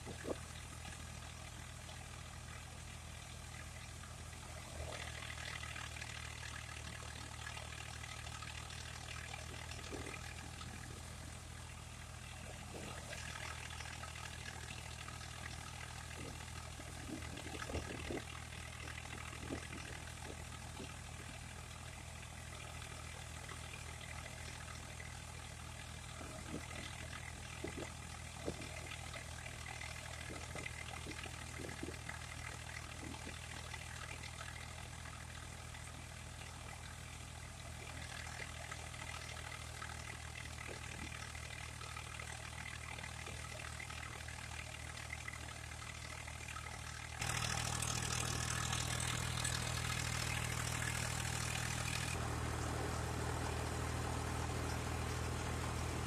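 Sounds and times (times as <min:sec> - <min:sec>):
tractor diesel engine droning: 0:47.1 - 0:56.0.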